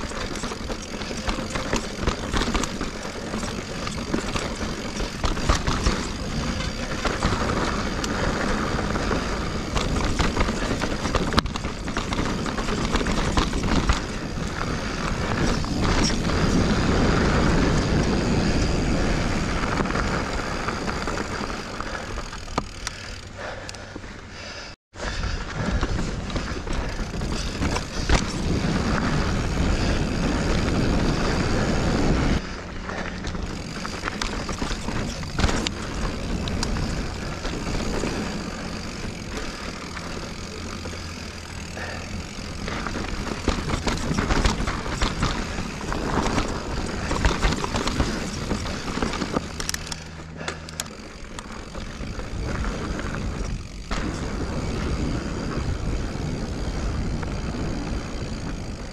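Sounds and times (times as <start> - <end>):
wind rushing over microphone: 0.0 - 21.8, 25.2 - 39.7
bike knocks and rattles: 0.0 - 24.0, 25.0 - 58.9
bike tyres rolling on dirt: 0.0 - 58.9.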